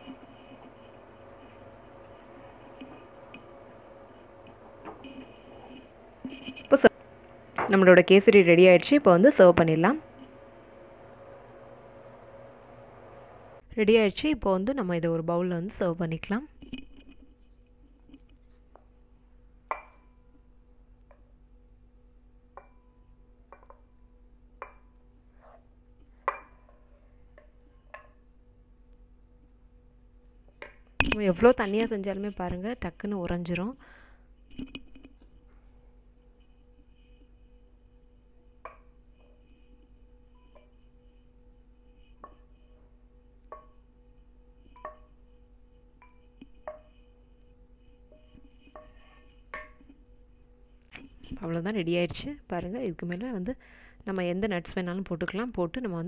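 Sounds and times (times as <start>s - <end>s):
faint steady hum: 0.0s - 56.0s
spatula scraping a pan: 48.1s - 49.7s.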